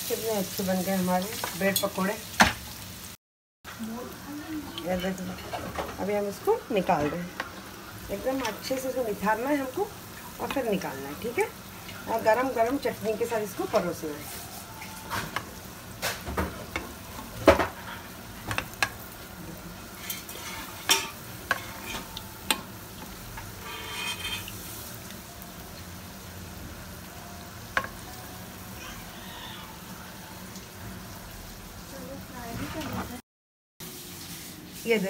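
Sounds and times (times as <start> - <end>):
food sizzling in hot oil: 0.0 - 33.2, 33.8 - 35.0.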